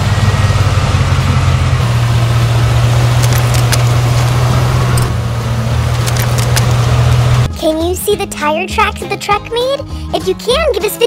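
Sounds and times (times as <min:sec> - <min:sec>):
truck engine idling: 0:00.0 - 0:07.5.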